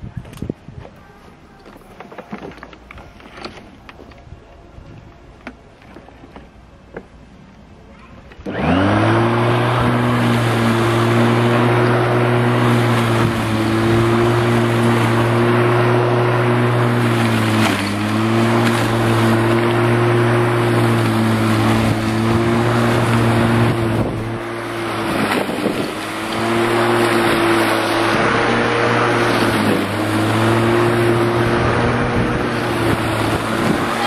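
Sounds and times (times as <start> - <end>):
electric lawn mower cutting grass: 8.4 - 34.0.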